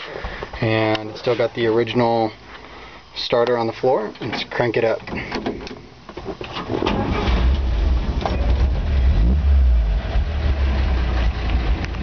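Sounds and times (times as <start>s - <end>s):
engine cranking and starting: 6.4s - 8.7s
engine running: 7.0s - 12.0s.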